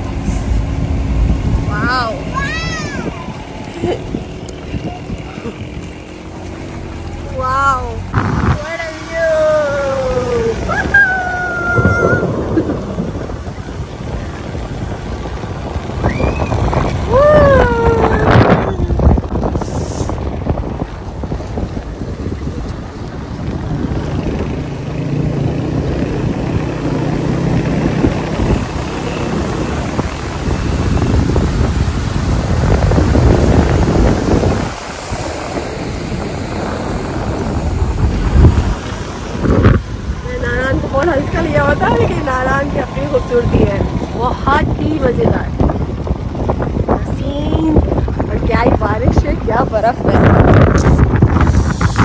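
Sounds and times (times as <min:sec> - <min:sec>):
rushing water: 0:00.0 - 0:52.0
vehicle rumble: 0:00.0 - 0:52.0
wind buffeting microphone: 0:00.0 - 0:52.0
person whooping: 0:10.1 - 0:12.4, 0:17.1 - 0:19.0.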